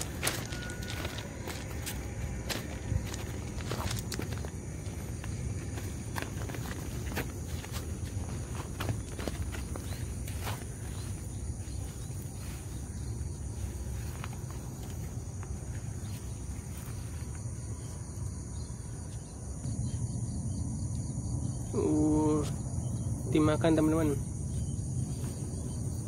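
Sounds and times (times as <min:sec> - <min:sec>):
low rumble: 0:00.0 - 0:16.7
footsteps in grass: 0:00.0 - 0:17.6
insects droning: 0:00.0 - 0:26.0.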